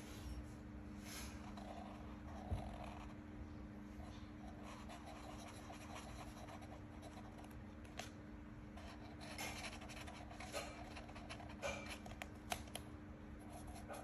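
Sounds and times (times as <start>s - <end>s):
steady low hum: 0.0s - 14.0s
marker scratching on paper: 4.4s - 7.5s, 8.8s - 12.2s.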